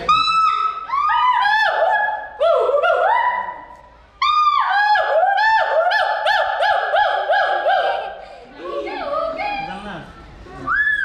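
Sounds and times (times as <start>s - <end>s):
gibbon whooping calls: 0.1s - 8.2s.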